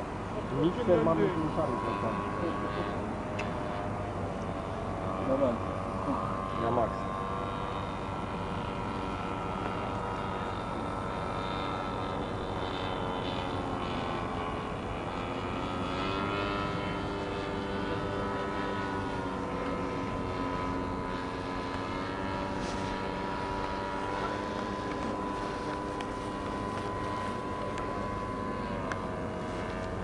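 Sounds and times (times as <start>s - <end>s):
model airplane engine droning: 0.0s - 30.0s.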